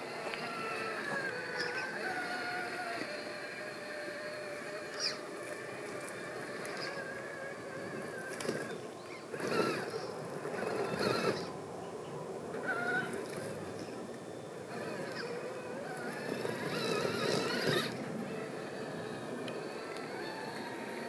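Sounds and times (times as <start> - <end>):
electric motor whining: 0.0 - 11.6, 12.5 - 21.0
tyres crunching on dirt: 16.0 - 18.4.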